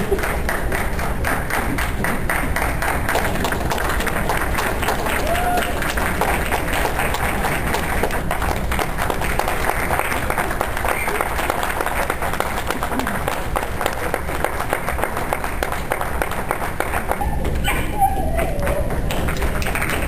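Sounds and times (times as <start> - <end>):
crowd clapping: 0.0 - 20.0
crowd voices: 3.3 - 15.5.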